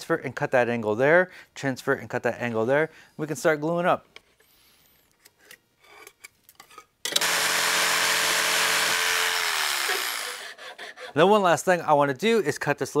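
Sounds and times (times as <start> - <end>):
jigsaw cutting wood: 7.1 - 11.1.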